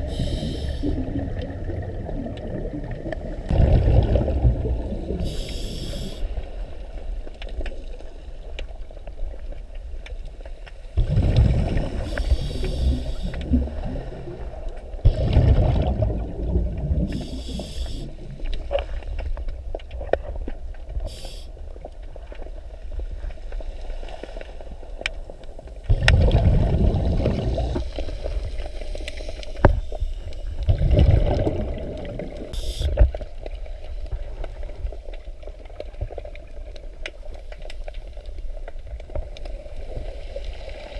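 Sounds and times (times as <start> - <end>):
regulator hissing inhales: 0.0 - 1.0, 5.2 - 6.4, 12.0 - 13.3, 17.1 - 18.2, 21.1 - 21.5, 32.5 - 33.0
bubbling exhaled air: 0.0 - 6.4, 11.0 - 18.4, 25.9 - 33.1.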